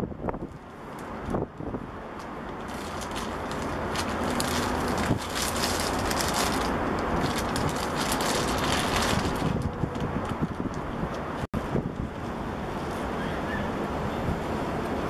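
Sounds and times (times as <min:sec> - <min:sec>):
wind rumbling on microphone: 0:00.0 - 0:15.0
plastic bag crinkling: 0:02.4 - 0:10.8.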